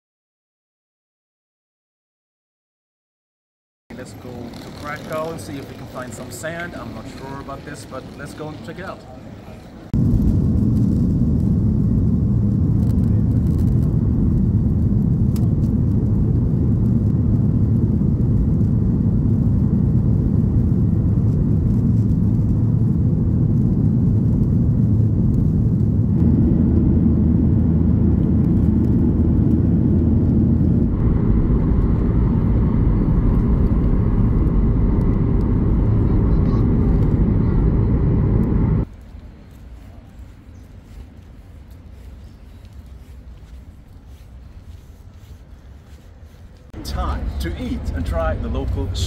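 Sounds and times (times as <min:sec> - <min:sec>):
vehicle rumble: 0:03.9 - 0:49.0.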